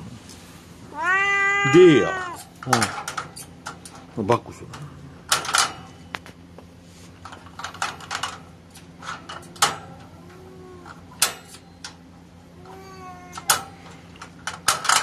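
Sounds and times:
cat meowing: 0.9s - 2.5s, 10.0s - 11.0s, 12.6s - 13.6s
light clicks and clatters: 2.4s - 12.0s, 12.6s - 15.0s.

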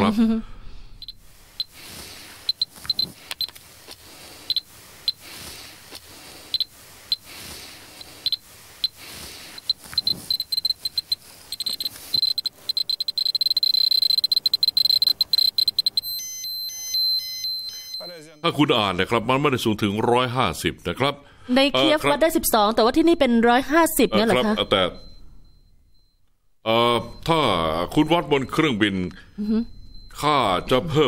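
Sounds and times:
dosimeter beeping: 1.0s - 3.6s, 4.5s - 5.4s, 6.5s - 18.5s, 23.1s - 31.0s
dosimeter clicking: 2.5s - 4.6s, 9.6s - 16.0s.

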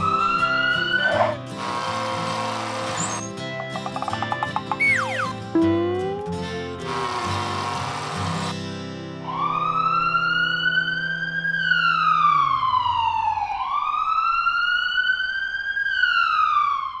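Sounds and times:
ambulance siren wailing: 9.3s - 17.0s.

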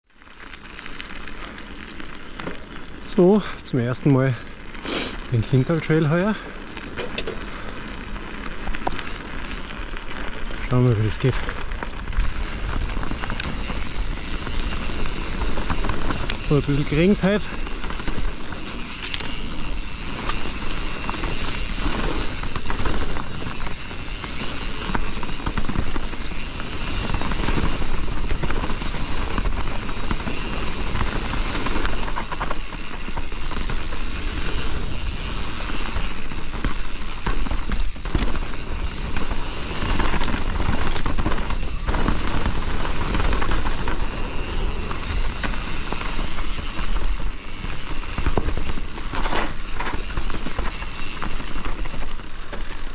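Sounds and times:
tyres rolling over dirt: 0.1s - 52.9s
bike knocks and rattles: 6.3s - 7.6s, 11.6s - 52.9s
wind buffeting microphone: 11.3s - 52.0s.

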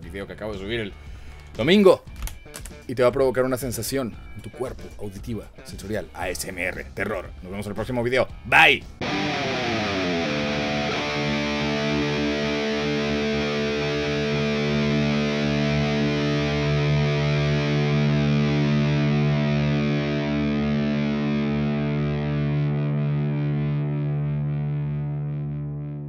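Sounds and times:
distorted electric guitar chord: 9.0s - 26.0s.

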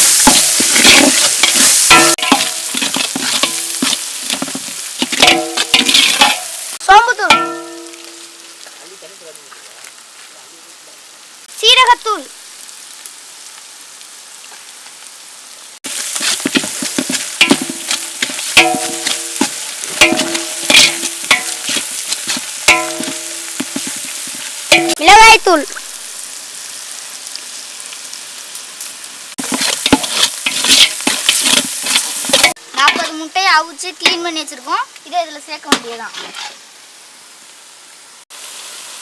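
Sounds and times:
masala sizzling and crackling: 0.0s - 39.0s
ladle scraping ringing pot: 0.2s - 6.5s, 16.2s - 24.0s, 24.7s - 25.0s, 29.4s - 33.0s.

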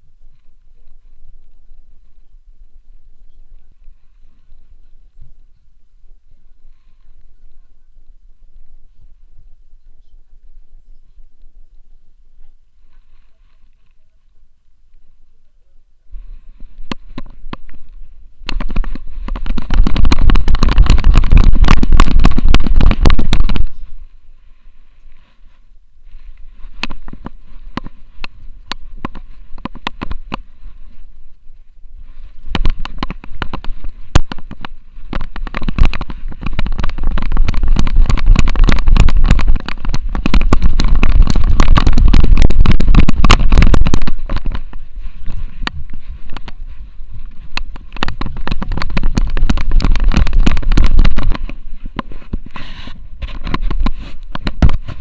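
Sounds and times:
camera mount rumbling and knocking: 16.8s - 23.8s, 26.7s - 30.5s, 32.3s - 55.0s.

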